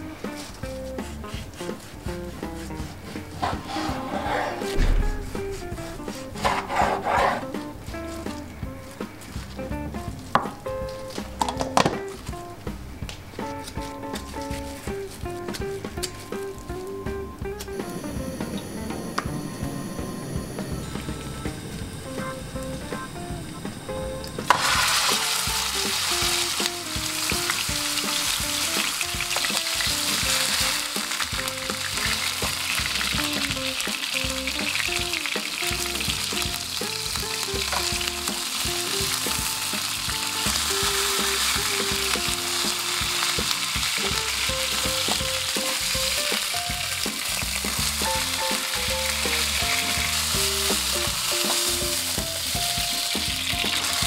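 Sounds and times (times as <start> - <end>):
faint background music: 0.0 - 54.0
meat sizzling in frying pan: 22.2 - 54.0.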